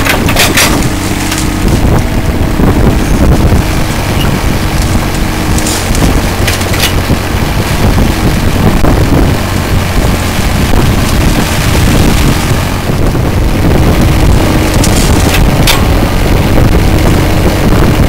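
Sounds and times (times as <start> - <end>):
bucket digging through mud and water: 0.0 - 2.0, 4.2 - 7.1, 14.1 - 16.0
excavator diesel engine running: 0.0 - 18.0
hydraulics working: 0.0 - 18.0.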